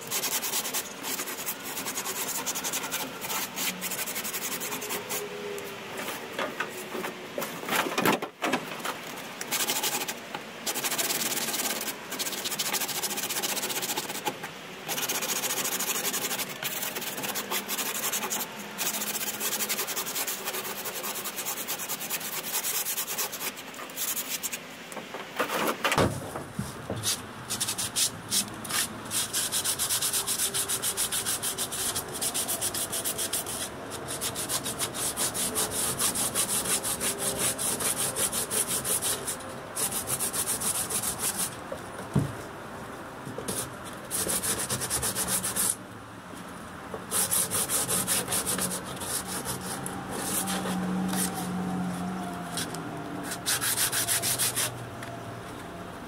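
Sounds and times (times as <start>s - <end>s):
sanding block scrubbing: 0.0s - 5.4s, 9.5s - 14.3s, 14.9s - 24.6s, 27.0s - 41.6s, 43.5s - 45.8s, 47.1s - 51.4s, 53.2s - 54.8s.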